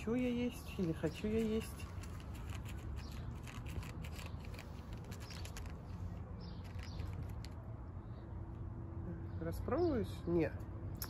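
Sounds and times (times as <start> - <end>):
cats crunching dry kibble: 0.2 - 7.7.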